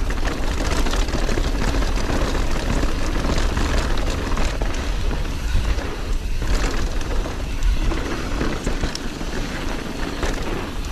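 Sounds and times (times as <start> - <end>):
bike knocks and rattles: 0.0 - 10.9
bike tyre noise on dirt: 0.0 - 10.9
wind rumbling on microphone: 0.0 - 10.9.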